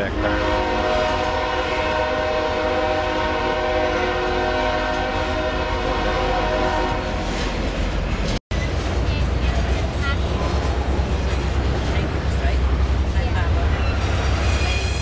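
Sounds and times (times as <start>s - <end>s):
freight train rumbling past: 0.0s - 15.0s
locomotive air horn: 0.2s - 7.3s.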